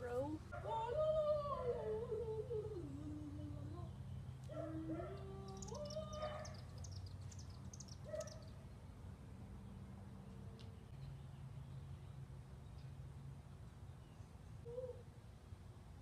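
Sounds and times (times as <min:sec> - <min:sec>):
low steady hum: 0:00.0 - 0:16.0
person humming: 0:00.9 - 0:04.0
high bird chirps: 0:05.4 - 0:08.6.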